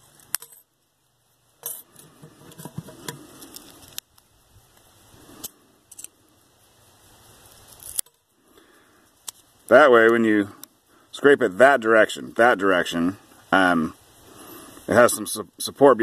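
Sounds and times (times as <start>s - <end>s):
thin metal crinkling: 1.6s - 4.0s, 7.5s - 8.3s.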